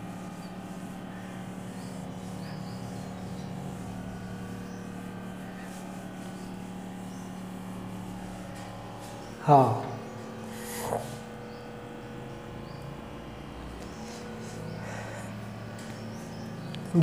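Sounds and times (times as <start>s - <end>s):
duster wiping whiteboard: 0.0s - 11.3s
steady low hum: 0.0s - 17.0s.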